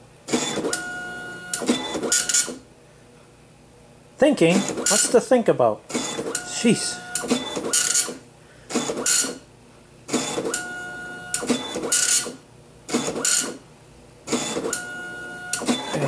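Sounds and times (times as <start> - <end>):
dot-matrix printer print head buzzing: 0.3 - 2.6, 4.5 - 5.2, 5.9 - 9.4, 10.1 - 13.6, 14.3 - 16.0
printer whine: 0.3 - 2.6, 4.4 - 5.2, 5.9 - 9.4, 10.1 - 13.6, 14.3 - 16.0.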